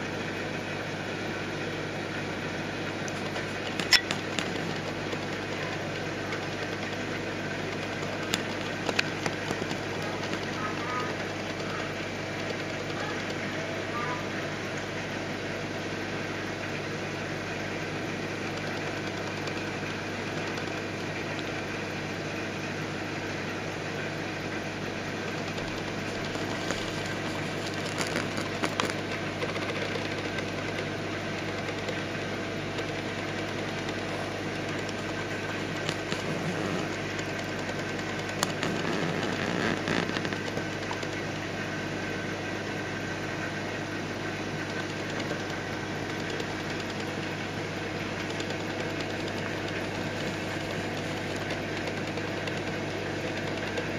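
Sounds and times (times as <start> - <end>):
aquarium pumps and fans whirring: 0.0 - 53.9.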